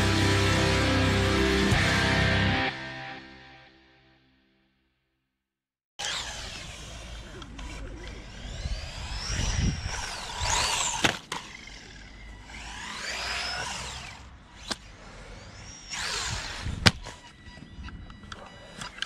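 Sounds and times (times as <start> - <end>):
electric motor whining: 6.0 - 19.0.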